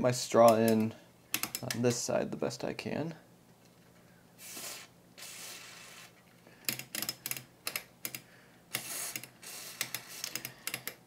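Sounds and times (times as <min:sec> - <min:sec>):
aerosol can spraying: 0:04.4 - 0:06.2.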